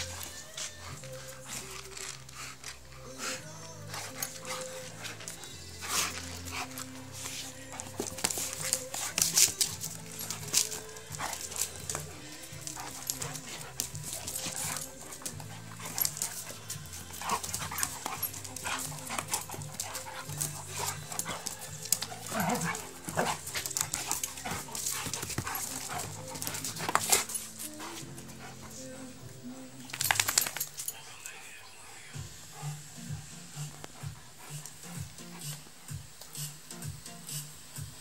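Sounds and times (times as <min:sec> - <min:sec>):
dogs tussling: 0:00.0 - 0:31.5
background music: 0:00.0 - 0:38.0
dog crying: 0:09.6 - 0:28.9.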